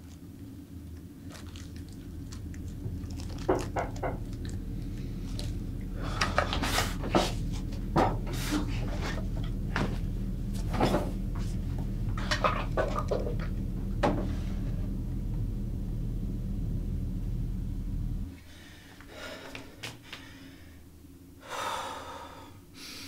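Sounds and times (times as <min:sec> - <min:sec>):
steady low hum: 0:00.0 - 0:23.0
man breathing heavily: 0:04.6 - 0:09.6, 0:18.4 - 0:23.0.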